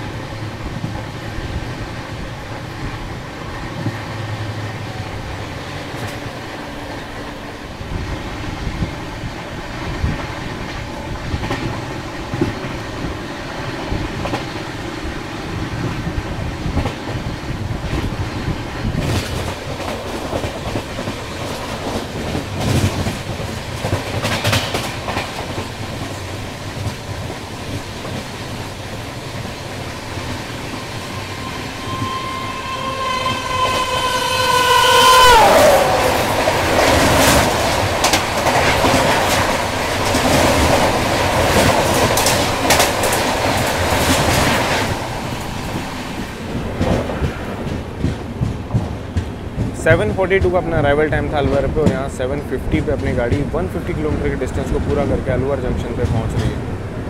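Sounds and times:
train wheels clattering over rail joints: 15.5s - 31.3s, 35.8s - 56.7s
train horn: 31.1s - 37.0s.

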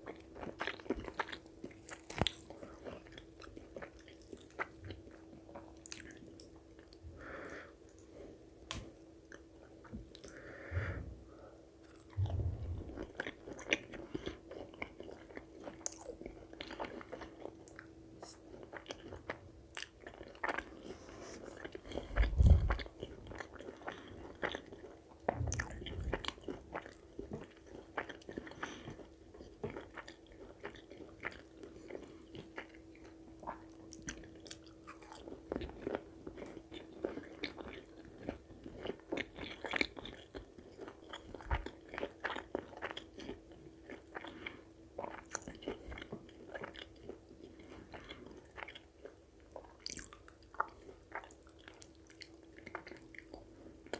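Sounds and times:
chewing and biting food: 0.0s - 7.0s, 11.8s - 53.9s
faint steady hum: 0.0s - 53.9s
low thump: 12.2s - 13.1s, 25.3s - 26.2s.

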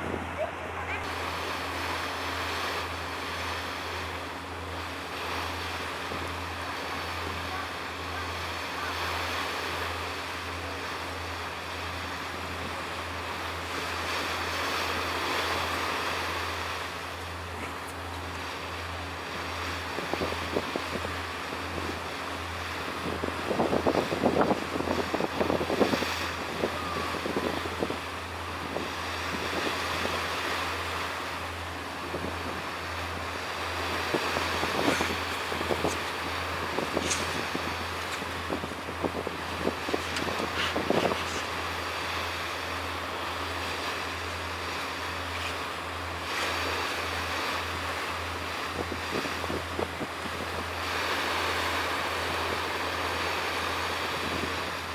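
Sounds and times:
steady low rumble: 0.0s - 2.0s
wind blowing across microphone: 19.8s - 30.2s, 32.0s - 41.7s, 48.6s - 54.9s.

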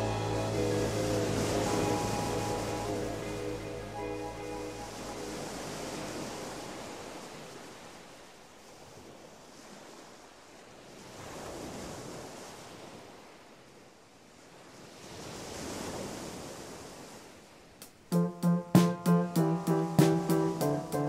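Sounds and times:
music: 0.0s - 6.6s, 18.1s - 21.0s
waves washing in: 0.0s - 13.4s, 18.1s - 21.0s.

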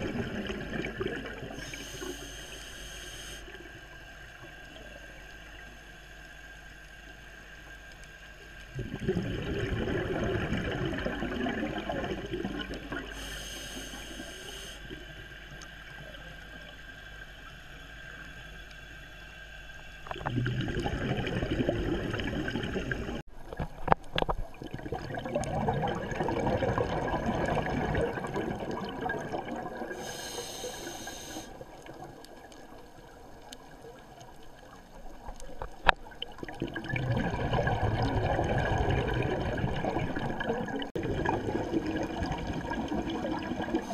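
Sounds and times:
bubbling exhalations: 0.0s - 2.0s, 8.7s - 13.3s, 20.1s - 23.2s, 24.5s - 30.2s, 36.4s - 43.9s
regulator inhale hisses: 1.6s - 3.6s, 13.1s - 15.1s, 29.9s - 31.8s.

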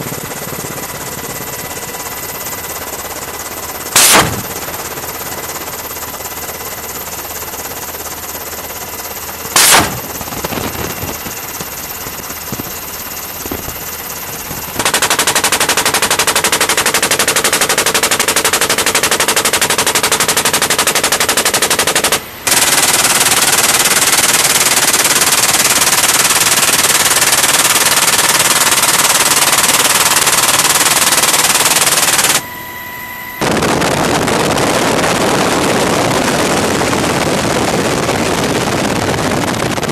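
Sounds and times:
machine gun automatic fire: 0.0s - 32.4s
helicopter cabin noise: 0.0s - 39.9s
loud bang: 4.0s - 4.9s, 9.6s - 12.7s.

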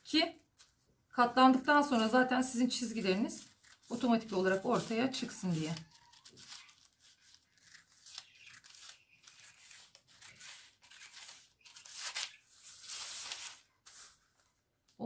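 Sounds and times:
paper rustling: 1.5s - 14.6s
scissors snipping paper: 2.8s - 12.4s.

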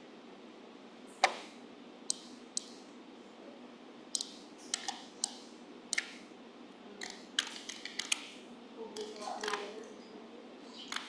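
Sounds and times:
faint steady hiss: 0.0s - 11.0s
keyboard and mouse clicks: 2.1s - 2.8s, 4.1s - 6.2s, 7.0s - 8.4s, 9.0s - 9.7s, 10.8s - 11.0s.

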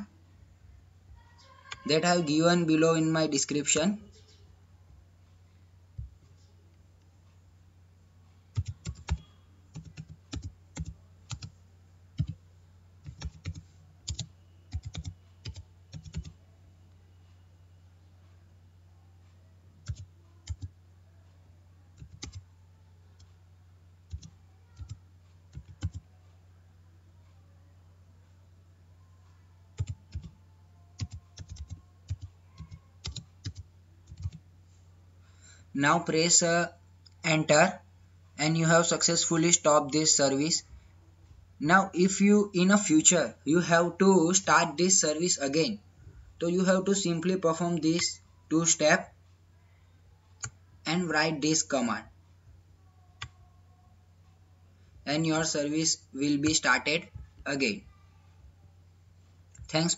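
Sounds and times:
steady low hum: 0.0s - 59.9s
computer keyboard typing: 8.5s - 11.5s, 12.2s - 12.4s, 13.0s - 16.4s, 19.8s - 20.7s, 22.0s - 22.4s, 24.1s - 26.1s, 29.8s - 30.4s, 31.0s - 34.4s.

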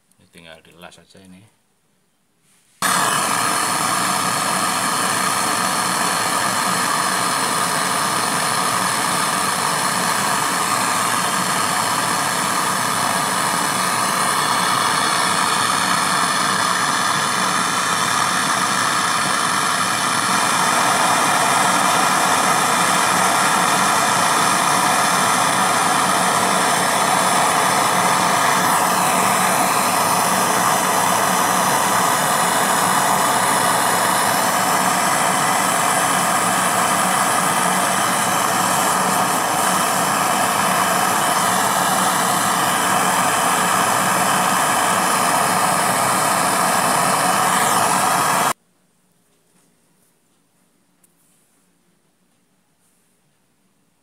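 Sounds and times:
gas torch burning with a hiss: 2.8s - 48.6s.

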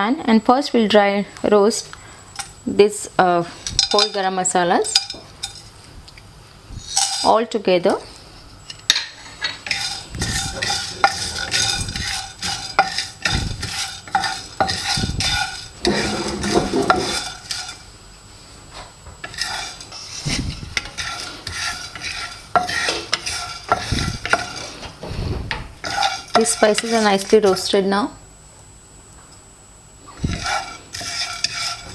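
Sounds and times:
wooden spatula scraping spices: 9.2s - 17.9s, 19.2s - 25.0s, 25.8s - 27.8s, 30.1s - 31.9s.

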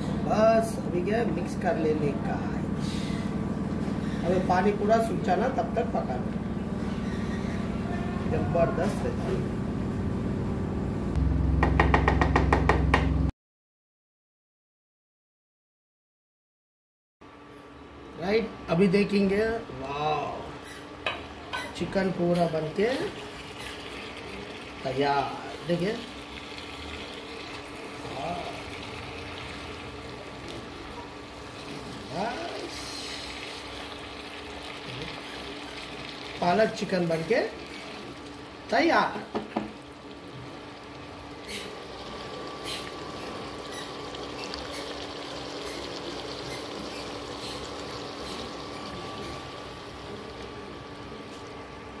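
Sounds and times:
steady hum: 0.0s - 13.3s
curry sizzling in a pot: 21.1s - 51.5s.

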